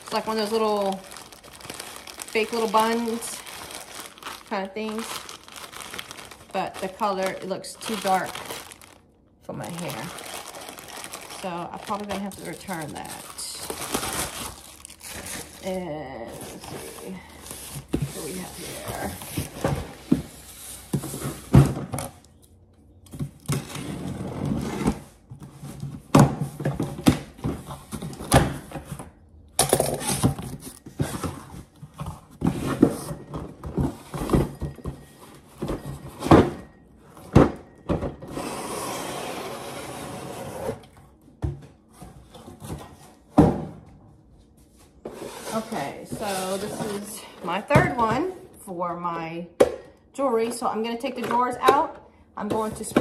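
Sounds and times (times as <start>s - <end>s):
plastic bag crinkling and tearing: 0.0s - 19.5s.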